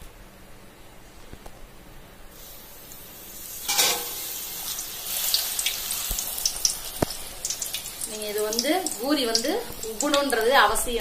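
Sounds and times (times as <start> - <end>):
dough sizzling in hot oil: 2.3 - 11.0.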